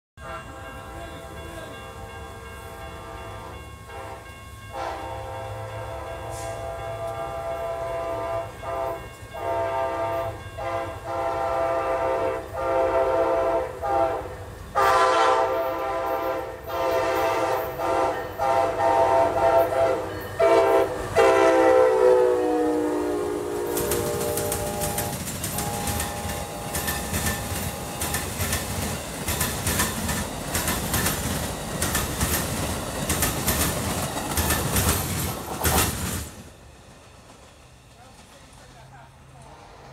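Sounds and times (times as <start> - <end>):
train horn blasts: 0.2 - 28.8, 39.4 - 39.9.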